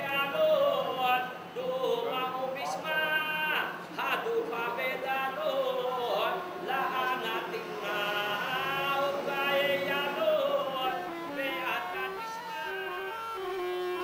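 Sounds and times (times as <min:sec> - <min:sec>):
person chanting a prayer: 0:00.0 - 0:12.2.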